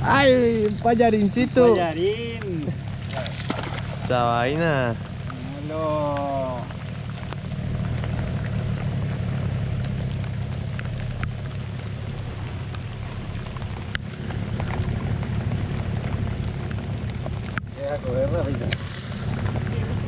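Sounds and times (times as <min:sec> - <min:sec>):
rain on a river: 0:00.0 - 0:20.0
steady low rumble: 0:00.0 - 0:20.0
single raindrops ticking: 0:02.4 - 0:17.8.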